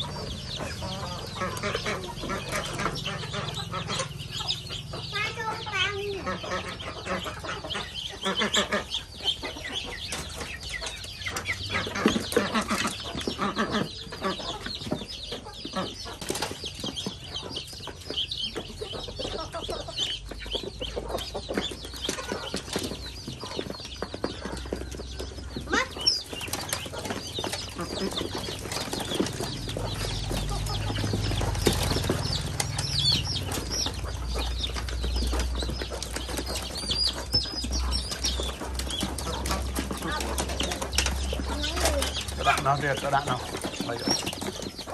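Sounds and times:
bills pecking in dry feed: 0:00.0 - 0:44.9
chickens clucking: 0:00.0 - 0:44.9
ducklings peeping: 0:00.0 - 0:44.9
wings flapping: 0:19.1 - 0:44.9.

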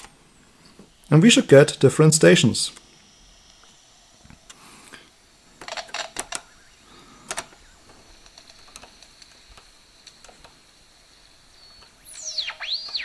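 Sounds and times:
faint clicks and crackles: 0:02.8 - 0:06.5, 0:07.2 - 0:10.8
faint high whistle: 0:11.6 - 0:13.0.

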